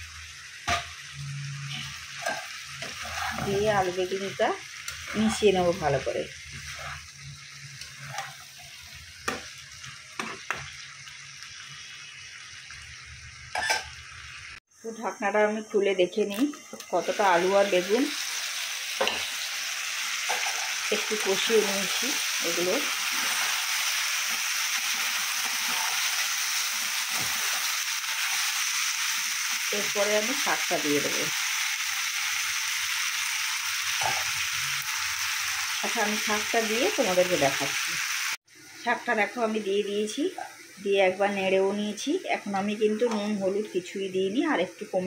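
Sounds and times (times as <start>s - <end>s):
food sizzling in oil: 0.0s - 45.0s
spatula scraping pan: 1.6s - 3.9s, 6.4s - 9.5s, 20.2s - 22.0s, 22.8s - 28.4s
metal spatula stirring: 1.7s - 3.8s, 6.5s - 7.2s, 7.8s - 9.4s, 20.3s - 20.9s.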